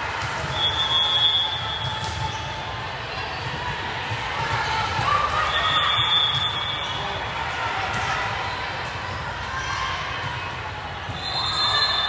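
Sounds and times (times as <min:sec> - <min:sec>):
referee's whistle blast: 0:00.5 - 0:02.1, 0:05.5 - 0:07.1, 0:11.1 - 0:12.0.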